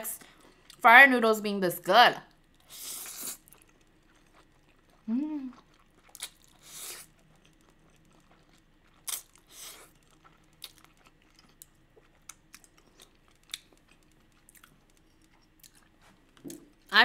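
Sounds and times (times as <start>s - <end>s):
chewing with wet mouth clicks: 3.3s - 16.6s.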